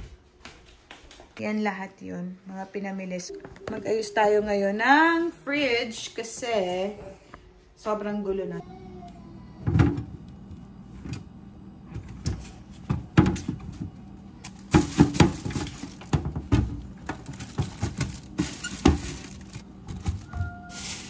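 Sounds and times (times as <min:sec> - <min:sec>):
plastic bag crinkling: 0:14.6 - 0:16.2, 0:17.0 - 0:21.0.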